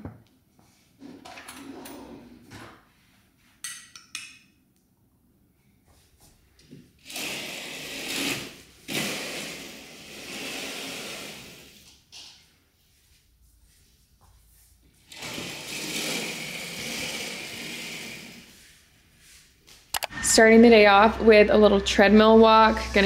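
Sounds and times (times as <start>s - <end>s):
curtain carriers sliding on track: 7.0s - 11.8s, 15.1s - 18.5s.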